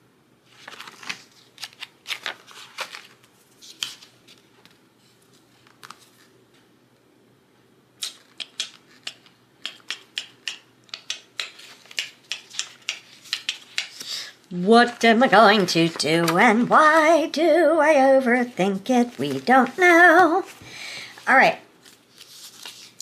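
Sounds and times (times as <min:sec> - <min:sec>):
paper pages flipping: 0:00.5 - 0:06.4, 0:11.1 - 0:14.1, 0:14.9 - 0:17.3, 0:19.0 - 0:23.0.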